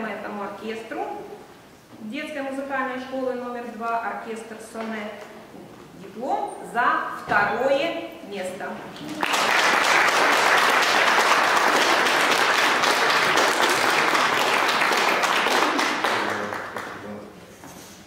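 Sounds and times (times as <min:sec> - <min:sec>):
audience applauding: 0:09.0 - 0:17.2.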